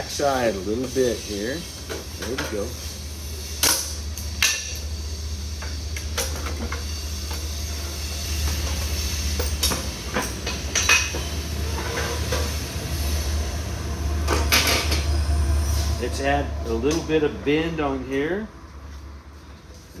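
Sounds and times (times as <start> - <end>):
steady low rumble: 12.4 - 19.4.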